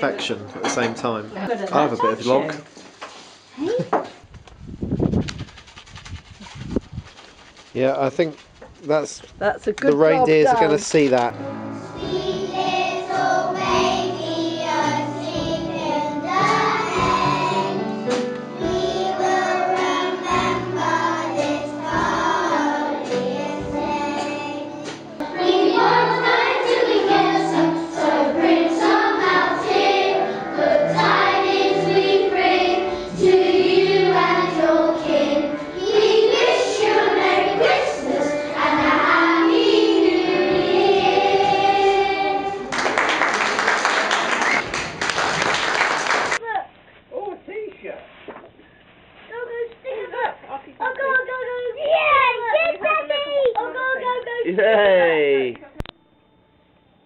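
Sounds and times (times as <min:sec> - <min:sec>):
children singing in a choir: 0:11.8 - 0:42.9.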